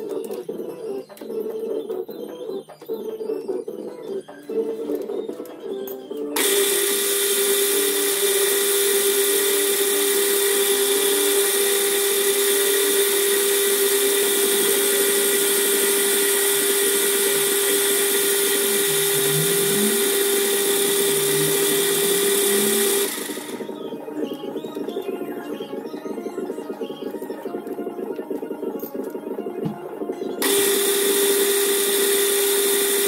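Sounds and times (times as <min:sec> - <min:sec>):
lathe spindle whining and humming: 0:06.4 - 0:26.5, 0:30.4 - 0:33.0.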